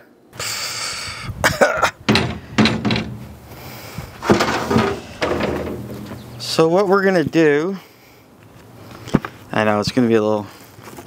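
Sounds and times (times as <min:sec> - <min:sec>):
metal door clanking open: 0:02.0 - 0:03.6, 0:04.2 - 0:06.6.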